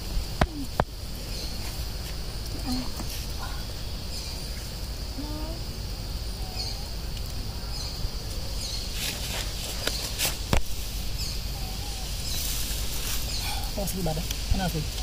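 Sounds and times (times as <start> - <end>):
high-pitched insect drone: 0.0 - 9.0
crackling dry leaf litter: 0.0 - 15.0
low outdoor rumble: 0.0 - 15.0.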